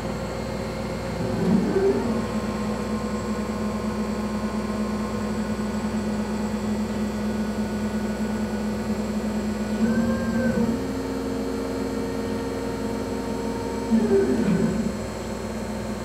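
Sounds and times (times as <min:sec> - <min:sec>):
laser cutter machine hum: 0:00.0 - 0:16.0
motor tone: 0:09.5 - 0:15.3.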